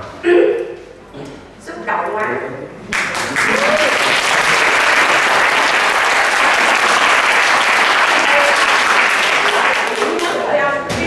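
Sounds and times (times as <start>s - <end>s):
audience applauding: 2.9s - 10.4s.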